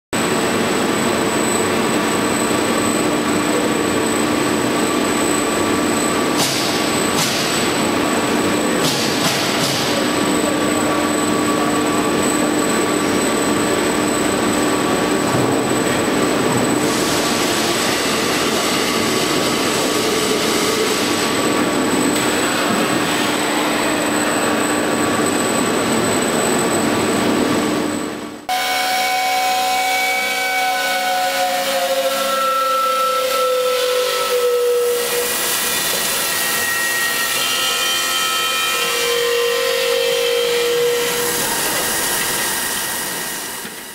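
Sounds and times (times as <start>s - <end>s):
cutoff saw humming and whining: 28.5s - 43.9s.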